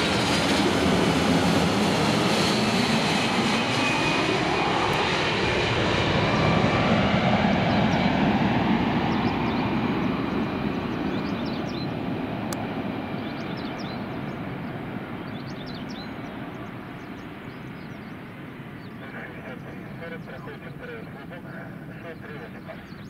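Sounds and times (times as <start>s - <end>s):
jet airliner engines rumbling: 0.0s - 23.0s.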